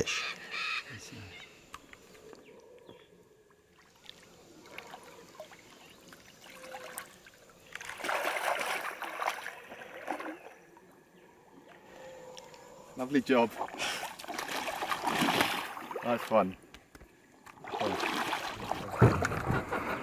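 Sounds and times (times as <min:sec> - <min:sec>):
water trickling: 0:03.7 - 0:10.4
river water splashing: 0:03.7 - 0:10.9, 0:13.0 - 0:16.6, 0:17.2 - 0:20.0.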